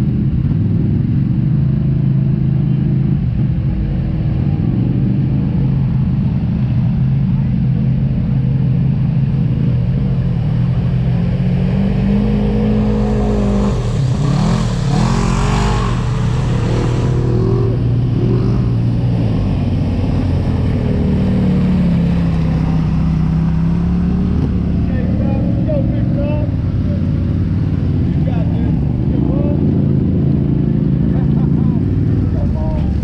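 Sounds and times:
off-road engine running steadily: 0.0s - 33.0s
rush of noise: 0.0s - 33.0s
engine revving: 10.0s - 33.0s.

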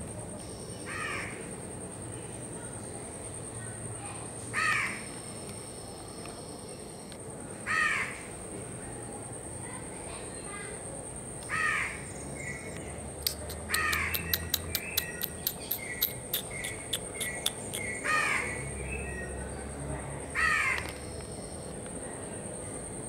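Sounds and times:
bird harsh caws: 0.9s - 1.4s, 4.5s - 5.1s, 7.7s - 8.3s, 11.5s - 12.6s, 13.7s - 14.6s, 15.2s - 18.6s, 20.4s - 20.9s
sharp ticks with short chirps: 12.6s - 18.3s.

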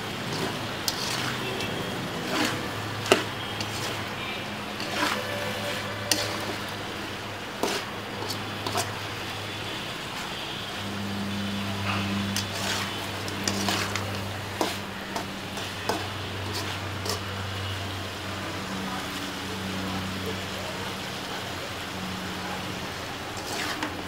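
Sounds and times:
metal spatula scraping a pan: 0.0s - 9.1s, 11.7s - 17.4s, 23.4s - 24.0s
light sizzle: 0.0s - 24.0s.

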